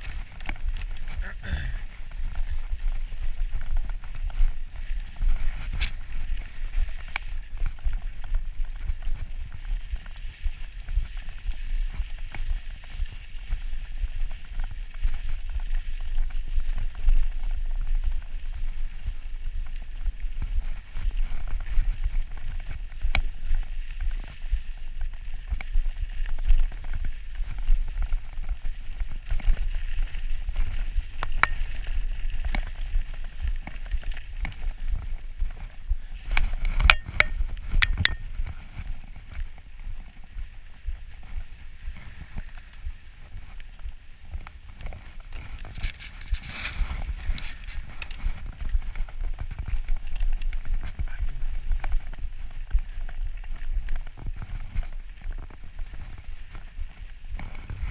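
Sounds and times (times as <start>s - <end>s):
bike rattling over bumps: 0.0s - 57.9s
tyres on dirt: 0.0s - 57.9s
wind rumbling on microphone: 0.0s - 57.9s
sharp clicks and knocks: 36.8s - 38.2s.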